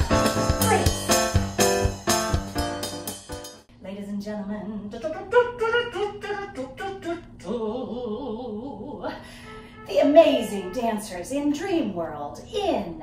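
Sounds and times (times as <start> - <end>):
person singing wordless syllables: 4.3 - 9.2.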